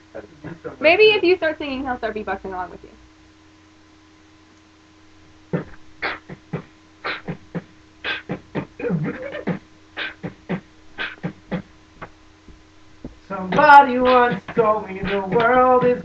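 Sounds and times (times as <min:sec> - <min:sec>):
man beatboxing: 0:00.2 - 0:00.8, 0:05.5 - 0:12.1, 0:13.3 - 0:16.0.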